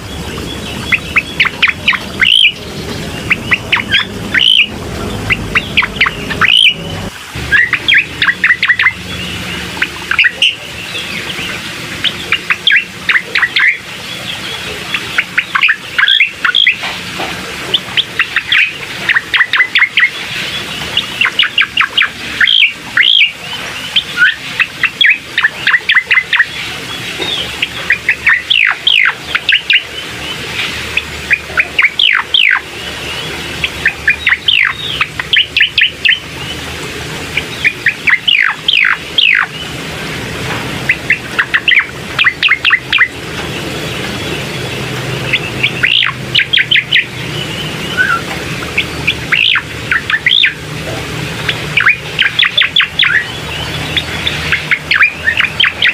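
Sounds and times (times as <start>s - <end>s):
bird singing whistled notes: 0.0s - 6.9s, 7.5s - 11.4s, 12.0s - 16.8s, 18.0s - 26.5s, 27.2s - 30.0s, 31.0s - 36.6s, 37.4s - 39.7s, 40.9s - 43.1s, 45.3s - 48.2s, 48.8s - 50.6s, 51.5s - 55.9s.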